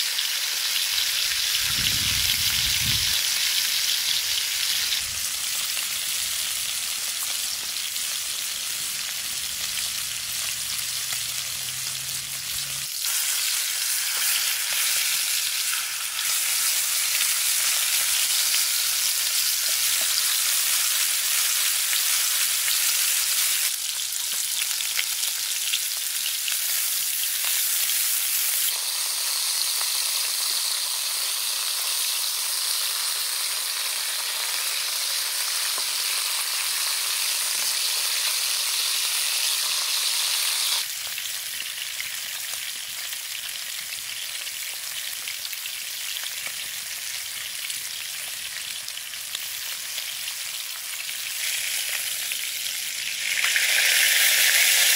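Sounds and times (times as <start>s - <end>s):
meat sizzling in hot oil: 0.0s - 54.9s.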